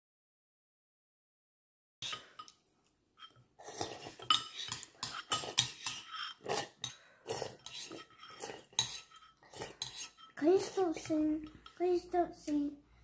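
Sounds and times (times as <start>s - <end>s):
metal spoon scraping ceramic bowl: 2.0s - 2.6s, 3.2s - 11.8s.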